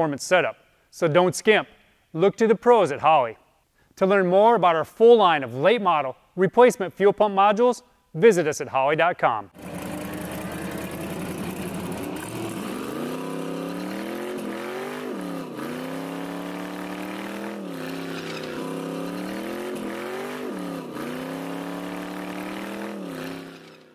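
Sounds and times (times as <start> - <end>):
drag car engine revving: 9.6 - 23.9.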